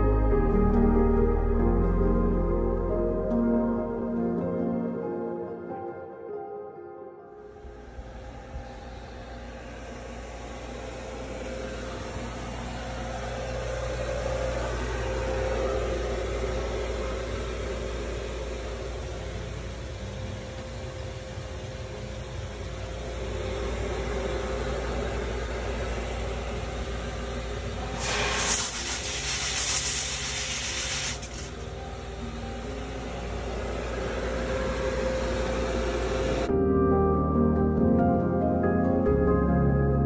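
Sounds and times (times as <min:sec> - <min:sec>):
pond filter mechanical hum: 0:07.5 - 0:36.6
hissing water spray: 0:27.9 - 0:31.6.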